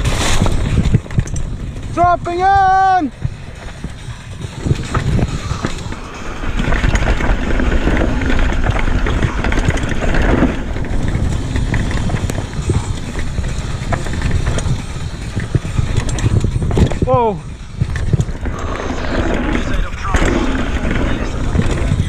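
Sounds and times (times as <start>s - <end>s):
bike chain clattering: 0.0s - 22.0s
wind and tyres on dirt: 0.0s - 22.0s.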